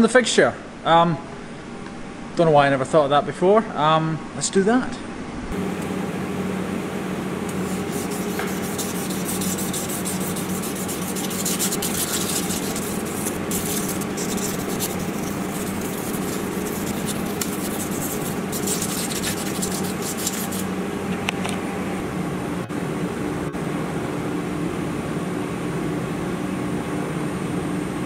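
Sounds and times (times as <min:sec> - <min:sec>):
sandpaper scratching metal blade: 0:07.5 - 0:20.7.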